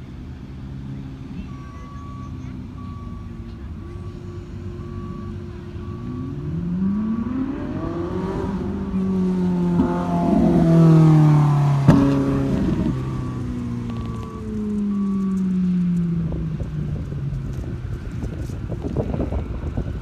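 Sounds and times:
car engine accelerating past: 0:05.9 - 0:17.7.

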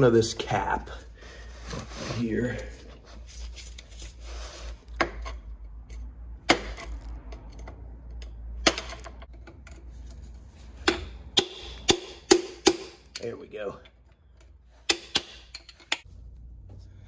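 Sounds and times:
low steady hum: 0:15.5 - 0:17.0.

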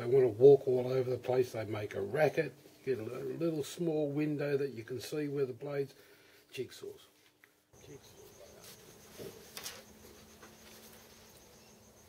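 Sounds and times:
insect chirring: 0:07.8 - 0:12.0.

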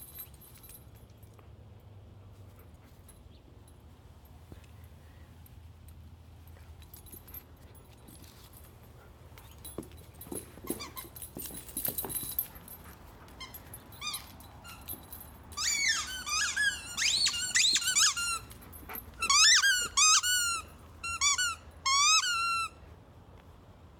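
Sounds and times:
squeaky dog toy squeaking: 0:10.6 - 0:11.5, 0:13.3 - 0:22.8.

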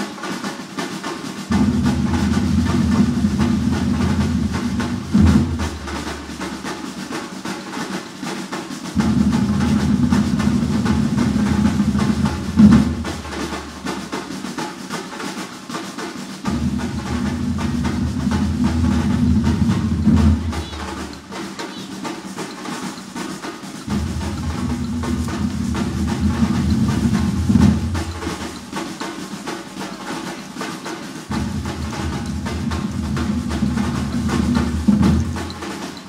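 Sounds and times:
lighter drums drumming: 0:01.4 - 0:07.2, 0:08.9 - 0:14.8, 0:16.4 - 0:36.0
bass drums: 0:01.5 - 0:06.7, 0:08.9 - 0:14.3, 0:16.4 - 0:21.4, 0:23.8 - 0:29.9, 0:31.3 - 0:35.8.

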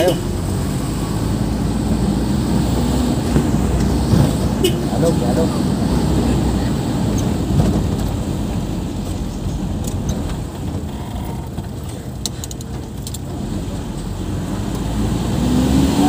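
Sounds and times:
car engine and road noise: 0:00.0 - 0:16.0
light clicks or rattles: 0:09.0 - 0:13.4.

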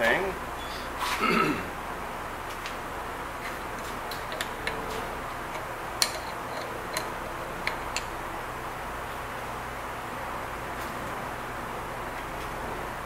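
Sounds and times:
low background noise: 0:00.0 - 0:13.0
sharp metal clicks and taps: 0:04.1 - 0:08.1.

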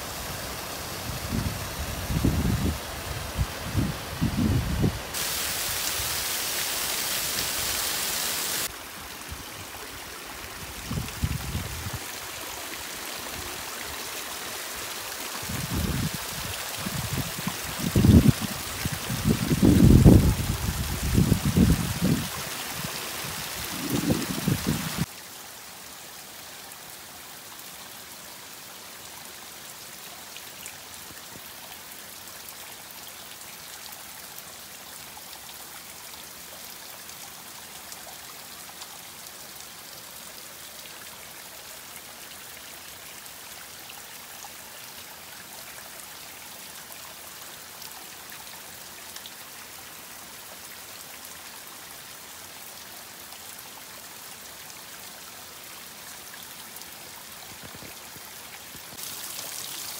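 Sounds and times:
water trickling down rock: 0:57.4 - 0:59.9.

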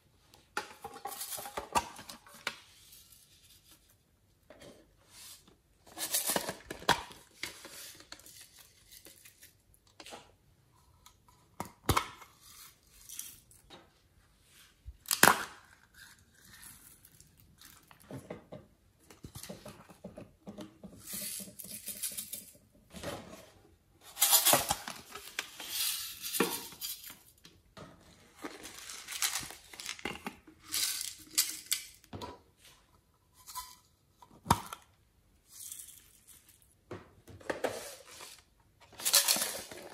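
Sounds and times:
beads rattling out of containers: 0:28.5 - 0:32.0.

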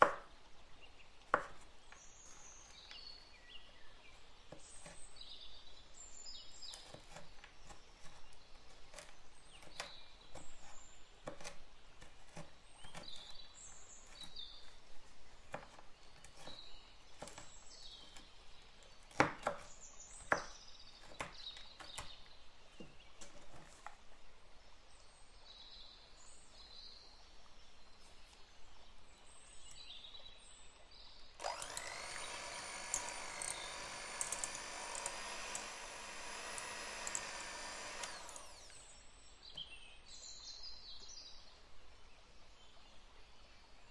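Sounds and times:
knife chopping on wooden board: 0:00.0 - 0:00.3, 0:01.3 - 0:01.7, 0:08.8 - 0:13.4, 0:15.5 - 0:16.6, 0:19.1 - 0:22.1.

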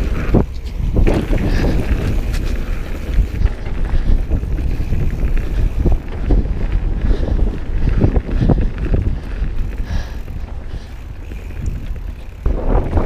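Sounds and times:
bike frame knocking and rattling: 0:00.0 - 0:09.7
wind buffeting microphone: 0:00.0 - 0:13.0.

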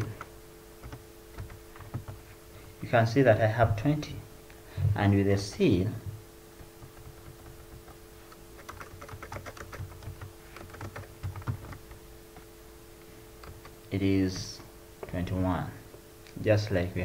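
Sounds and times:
typing on computer keyboard: 0:00.0 - 0:02.2, 0:06.8 - 0:12.0
faint steady hum: 0:00.0 - 0:17.0.

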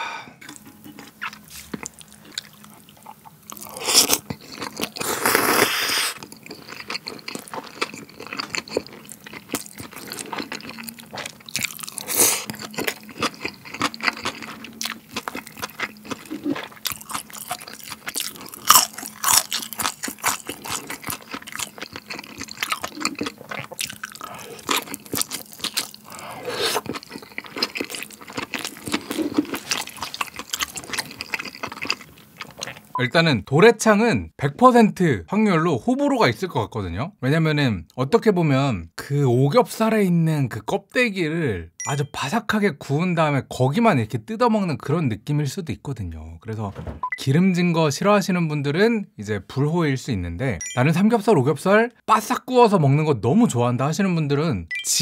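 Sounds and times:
crunching and chewing: 0:00.4 - 0:33.0
slurping noodles: 0:03.6 - 0:06.2, 0:22.2 - 0:31.5.

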